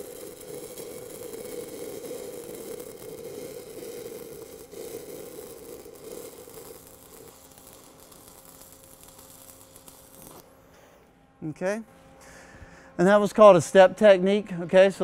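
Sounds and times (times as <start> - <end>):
welding arc crackling: 0.0 - 10.6.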